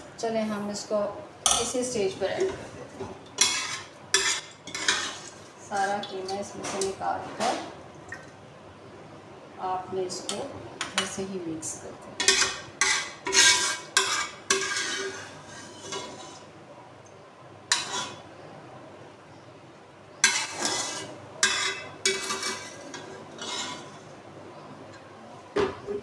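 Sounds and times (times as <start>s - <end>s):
metal spoon scraping pots: 3.4s - 6.1s, 12.2s - 16.5s, 17.7s - 18.2s, 20.2s - 24.1s.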